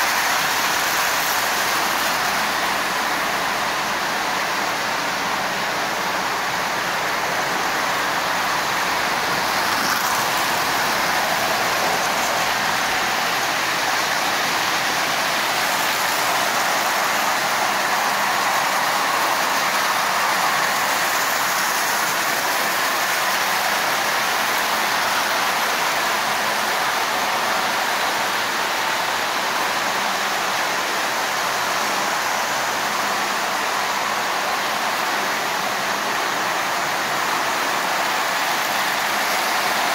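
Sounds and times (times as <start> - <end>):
toy train motors: 0.0 - 39.9
wheels on metal rails: 6.4 - 28.4.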